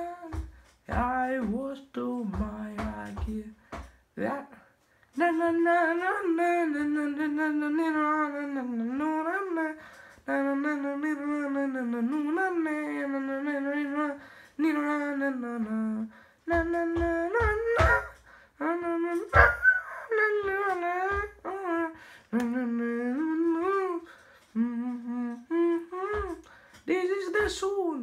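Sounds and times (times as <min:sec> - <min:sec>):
knocks: 0:00.0 - 0:04.0, 0:16.5 - 0:22.6, 0:26.0 - 0:27.8
man humming: 0:14.7 - 0:26.5.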